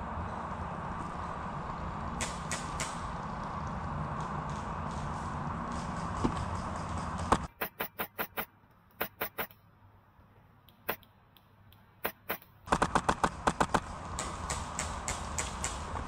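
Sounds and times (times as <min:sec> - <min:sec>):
airsoft guns firing: 0:12.0 - 0:15.9.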